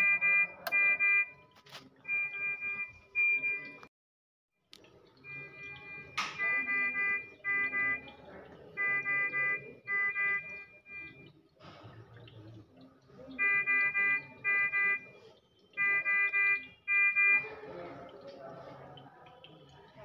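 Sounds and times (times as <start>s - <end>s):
patient monitor alarm beeping: 0.0s - 3.9s, 5.2s - 11.4s, 13.2s - 18.1s.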